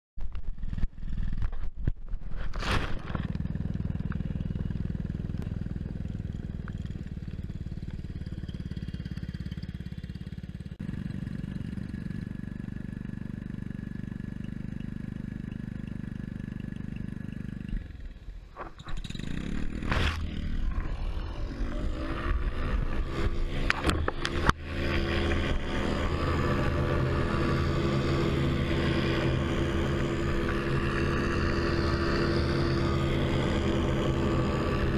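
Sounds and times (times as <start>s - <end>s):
paramotor engine and propeller: 0.2s - 34.9s.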